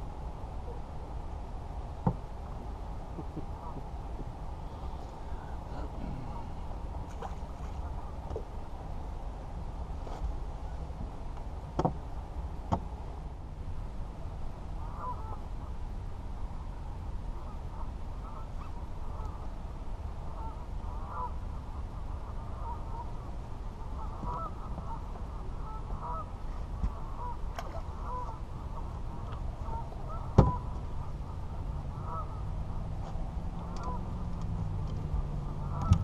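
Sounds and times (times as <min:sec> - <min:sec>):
low steady rumble: 0:00.0 - 0:36.0
geese honking: 0:14.8 - 0:15.4, 0:20.3 - 0:21.4, 0:24.0 - 0:25.0, 0:25.6 - 0:26.3, 0:28.0 - 0:32.4, 0:33.6 - 0:34.0, 0:35.6 - 0:36.0.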